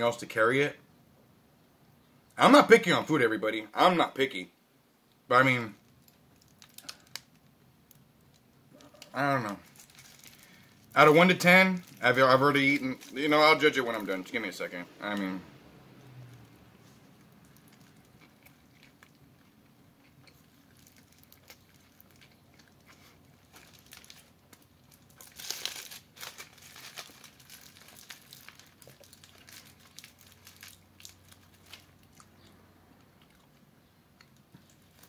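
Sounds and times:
foil wrapper crinkling: 0:05.8 - 0:14.4, 0:20.5 - 0:22.3, 0:23.0 - 0:32.2
chewing: 0:16.3 - 0:24.7, 0:27.9 - 0:35.0.

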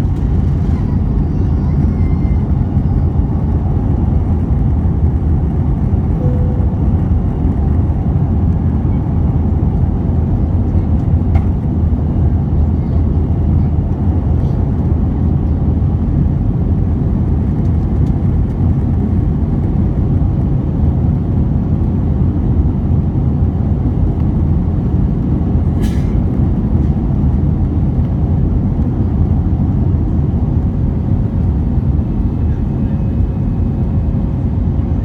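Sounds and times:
rushing airflow: 0:00.0 - 0:12.4
jet engines rumbling: 0:00.0 - 0:35.0.

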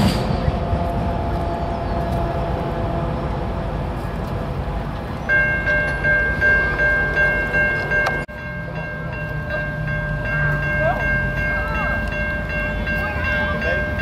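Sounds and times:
crossing warning bell ringing: 0:04.5 - 0:14.0.

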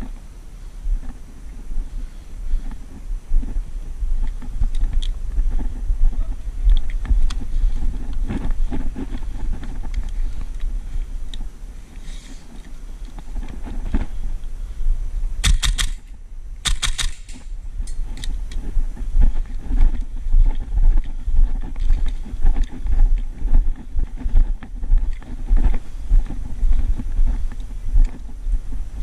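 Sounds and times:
wind rumbling on microphone: 0:00.0 - 0:29.0
footsteps: 0:00.8 - 0:29.0
sharp clicks and rattles: 0:15.4 - 0:18.6.

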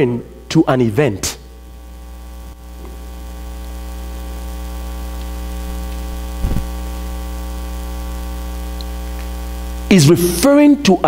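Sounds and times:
electrical mains hum: 0:00.0 - 0:11.0
low thump: 0:06.4 - 0:06.7.

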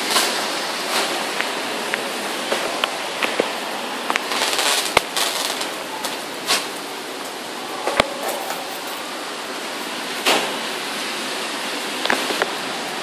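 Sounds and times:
raindrops ticking close by: 0:00.0 - 0:07.4, 0:12.0 - 0:12.6
heavy rain: 0:00.0 - 0:13.0.

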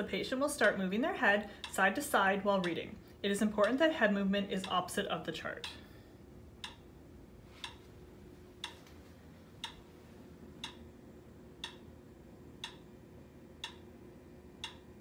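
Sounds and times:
metronome clicking: 0:06.6 - 0:06.9, 0:09.6 - 0:09.8, 0:10.6 - 0:10.9, 0:11.6 - 0:11.9, 0:12.6 - 0:12.9, 0:13.6 - 0:13.9, 0:14.6 - 0:14.9.

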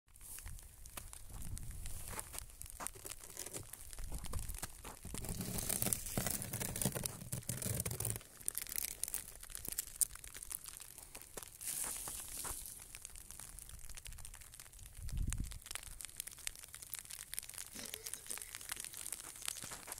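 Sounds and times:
freezing rain ticking on ice: 0:00.1 - 0:19.9.

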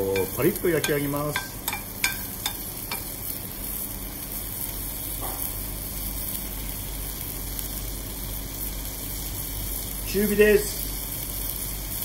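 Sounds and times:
bacon sizzling in a frying pan: 0:00.0 - 0:12.0
steady low hum: 0:00.0 - 0:12.0
metal spoon tapping a pan: 0:00.1 - 0:03.2.

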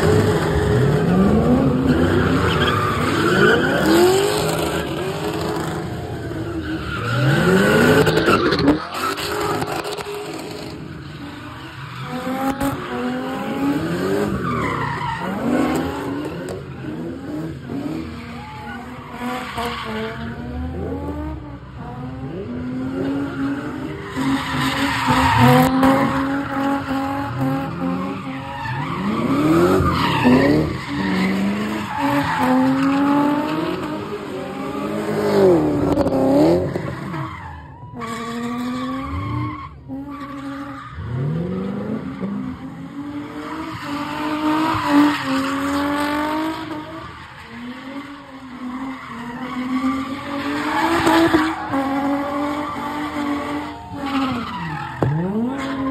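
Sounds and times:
car engines revving: 0:00.0 - 0:55.9
tires screeching: 0:00.0 - 0:55.9.

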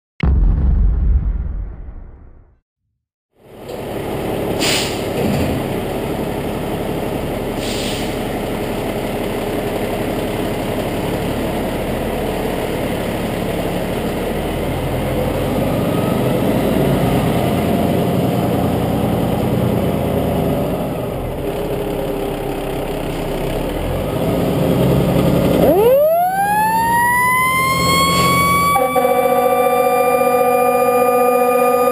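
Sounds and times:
diesel engine running: 0:03.4 - 0:31.9
air brakes hissing: 0:04.6 - 0:05.2, 0:07.6 - 0:08.3.

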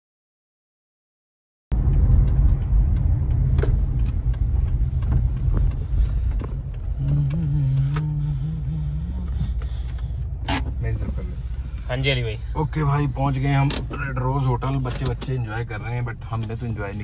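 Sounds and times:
low wavering hum: 0:01.7 - 0:12.6
car rumbling over dirt: 0:01.7 - 0:17.0.

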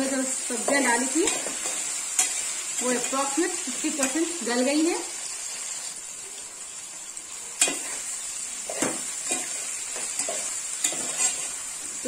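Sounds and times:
spoon stirring vegetables in pot: 0:00.5 - 0:04.4, 0:07.6 - 0:12.0.

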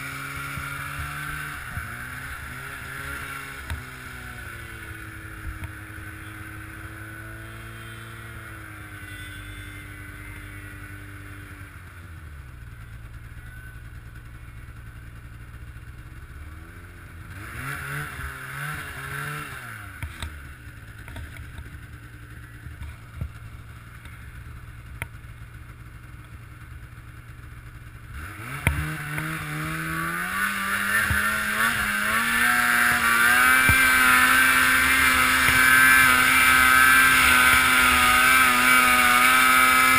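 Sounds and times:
snowmobile engine revving: 0:00.0 - 0:12.1, 0:16.4 - 0:24.3, 0:28.0 - 0:39.9.

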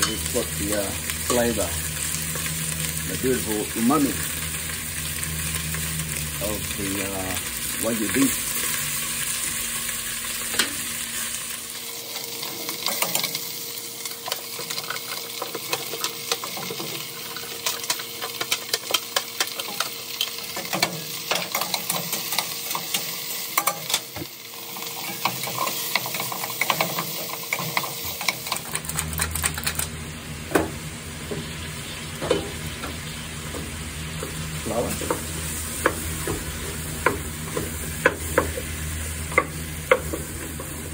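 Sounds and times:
meat sizzling in a saucepan: 0:00.0 - 0:40.9
utensils clicking against pan: 0:12.1 - 0:29.9.

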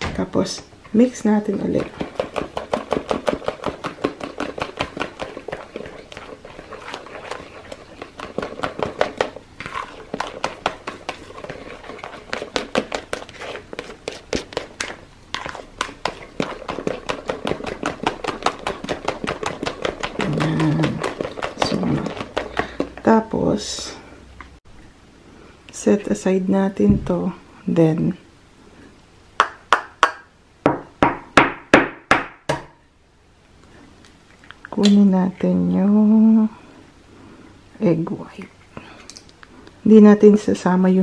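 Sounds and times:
spatula beating paste in bowl: 0:01.2 - 0:24.0.

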